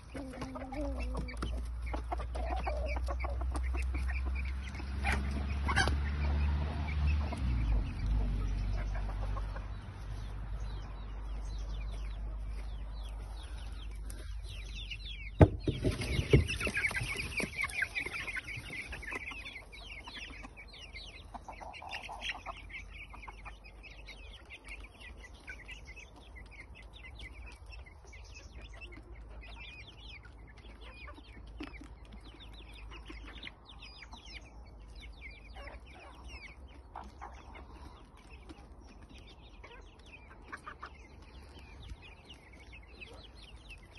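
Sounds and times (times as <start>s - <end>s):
chickens clucking: 0.0s - 43.9s.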